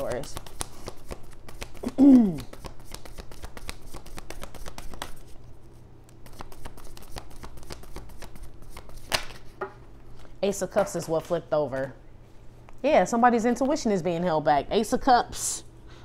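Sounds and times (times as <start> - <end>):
cards shuffling: 0.0 - 11.4.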